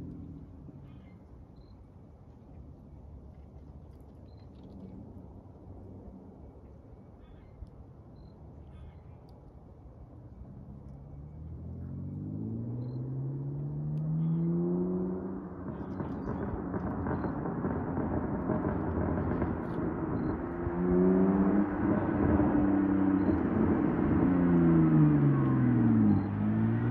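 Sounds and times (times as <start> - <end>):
car engine accelerating: 10.8 - 26.9.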